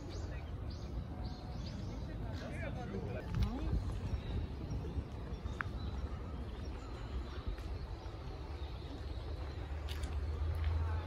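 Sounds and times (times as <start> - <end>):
bird chirp: 0.0 - 2.5.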